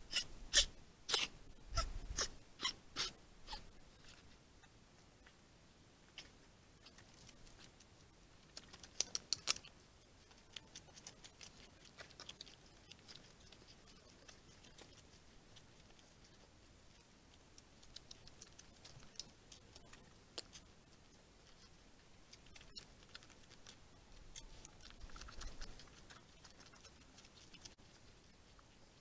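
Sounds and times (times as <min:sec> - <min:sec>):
faint sharp clicks and ticks: 0:06.1 - 0:29.0.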